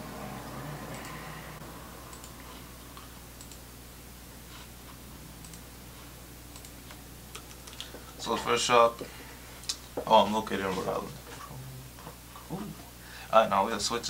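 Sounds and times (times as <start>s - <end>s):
steady low hum: 0.0s - 14.0s
laptop keys typing: 2.1s - 3.6s.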